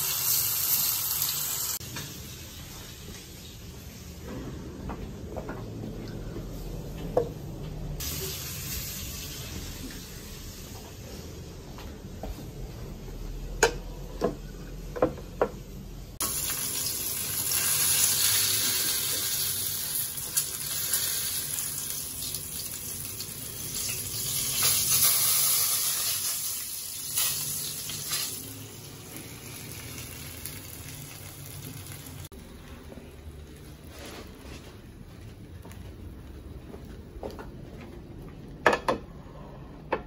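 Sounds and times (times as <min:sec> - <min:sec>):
fish sizzling in hot oil: 0:00.0 - 0:02.4, 0:16.2 - 0:32.3.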